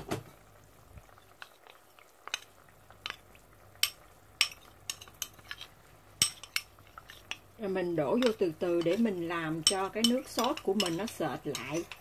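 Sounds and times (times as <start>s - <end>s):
spoon clinking ceramic bowl: 9.6s - 12.0s.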